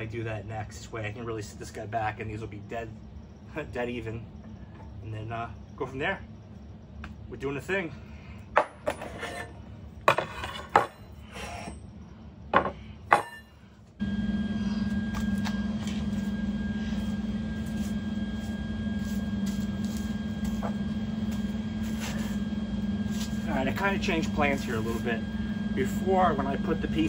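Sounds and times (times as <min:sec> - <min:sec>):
machine hum: 0:00.0 - 0:27.0
high-pitched whine: 0:09.0 - 0:27.0.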